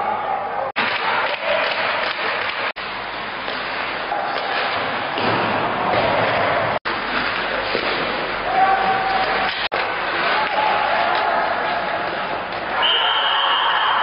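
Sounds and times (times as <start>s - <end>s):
arena crowd din: 8.4s - 14.0s.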